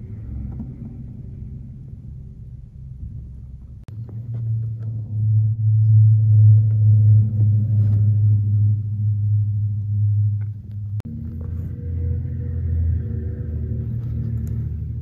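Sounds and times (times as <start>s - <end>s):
vehicle engine rumbling: 0.0s - 15.0s.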